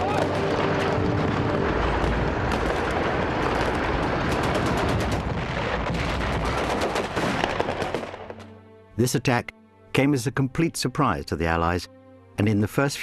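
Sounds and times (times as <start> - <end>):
artillery rumble: 0.0 - 8.3
rifle and machine-gun fire: 0.0 - 8.3.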